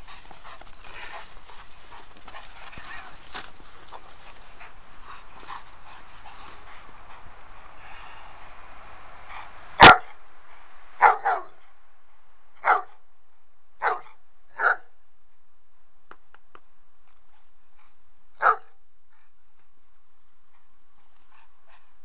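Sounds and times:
dog barking: 9.8 - 10.2, 11.0 - 11.6, 12.6 - 13.0, 13.8 - 14.9, 18.4 - 18.8.

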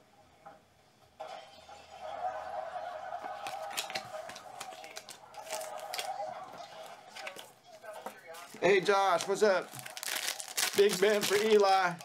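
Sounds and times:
cards clicking and sliding on table: 3.4 - 6.2.

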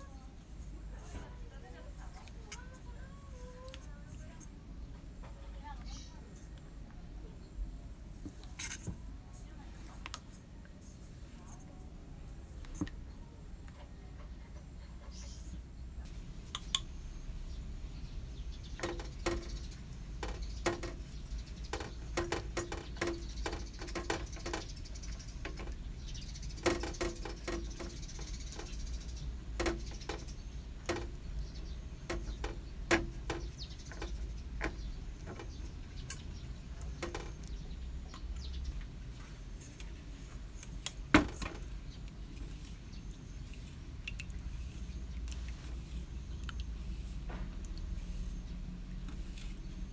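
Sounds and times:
brush tapping metal pan: 18.8 - 25.8, 26.4 - 28.8, 29.4 - 37.6.

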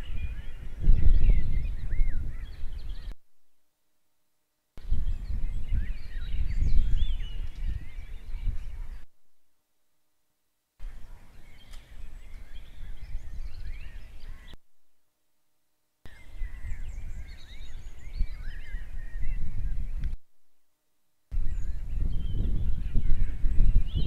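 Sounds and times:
birds chirping and whistling: 0.0 - 3.2, 4.8 - 9.0, 10.8 - 14.6, 16.1 - 20.1, 21.4 - 24.0
wind rumbling on microphone: 0.0 - 3.2, 4.8 - 9.1, 10.8 - 14.6, 16.1 - 20.2, 21.3 - 24.0.

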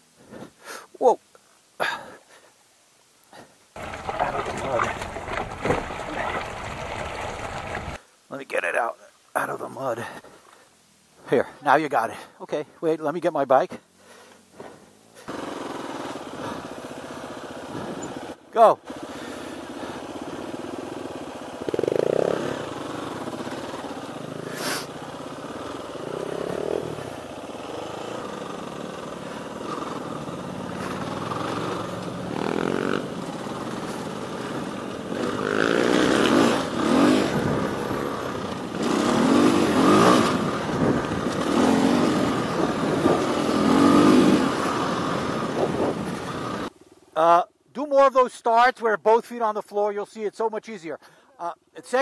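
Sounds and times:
dirt bike engine revving: 14.6 - 46.7.

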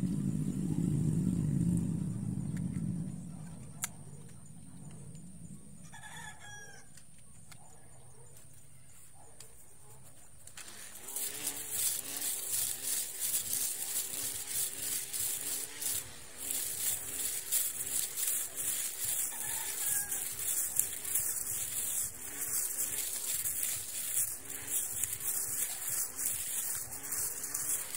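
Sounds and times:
electric grass trimmer cutting grass: 0.0 - 4.3, 10.5 - 27.9
rooster crowing: 5.8 - 7.0, 19.2 - 20.7.

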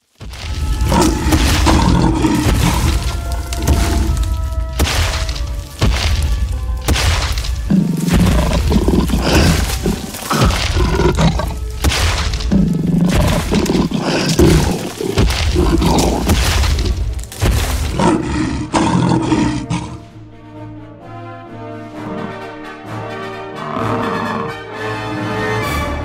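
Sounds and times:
dramatic background music: 0.1 - 26.0
cartoon dinosaur roars: 0.8 - 4.3, 7.7 - 11.6, 12.5 - 17.0, 17.8 - 20.0, 23.6 - 24.6.

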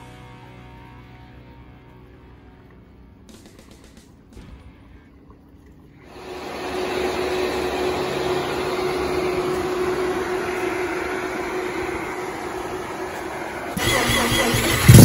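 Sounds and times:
steady hum-like tone: 4.6 - 13.8
rotary engine running: 6.1 - 15.0.

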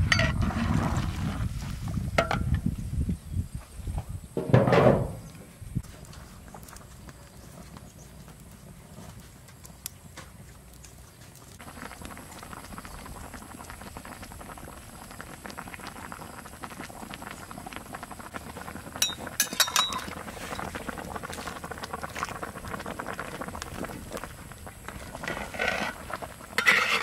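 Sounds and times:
soup bubbling in a pot: 11.6 - 27.0.

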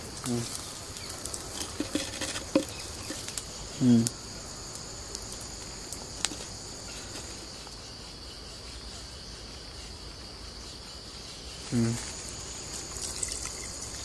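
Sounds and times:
insect chirring: 0.0 - 14.0
spoon scraping a bowl: 1.6 - 3.2
short vocal sound: 3.8 - 4.1.

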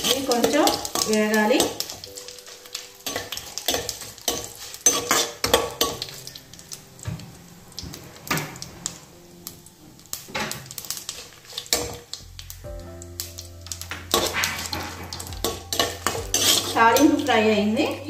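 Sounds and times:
ladle stirring and scraping pan: 0.0 - 6.6, 10.2 - 12.2, 13.7 - 17.7
spices sizzling in oil: 0.0 - 18.0.

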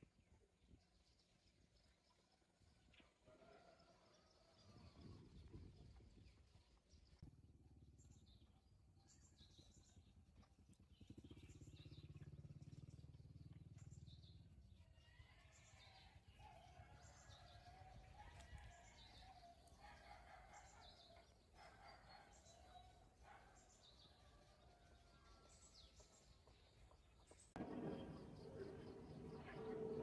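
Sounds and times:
low rumble: 27.6 - 30.0
wavering hum: 27.6 - 30.0.

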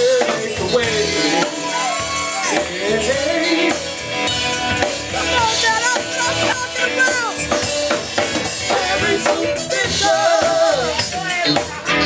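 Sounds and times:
drum kit beat: 0.0 - 12.0
electric bass: 0.0 - 12.0.

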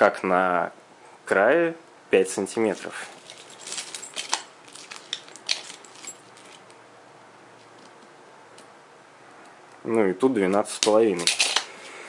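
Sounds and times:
tape measure clicks and rustles: 2.6 - 6.8, 10.4 - 11.7.

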